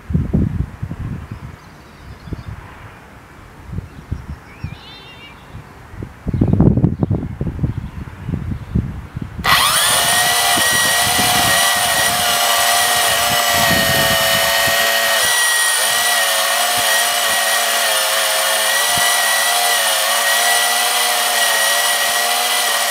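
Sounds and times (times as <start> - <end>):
electric motors whining: 9.4 - 22.9.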